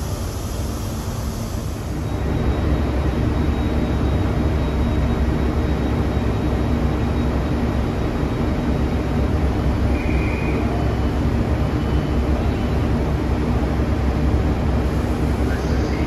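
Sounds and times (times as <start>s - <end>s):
train diesel engines under power: 0.0s - 16.0s.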